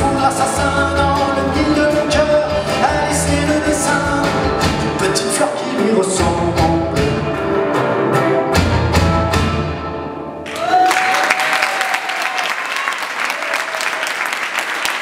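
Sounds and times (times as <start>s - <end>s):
audience applauding: 10.4s - 15.0s.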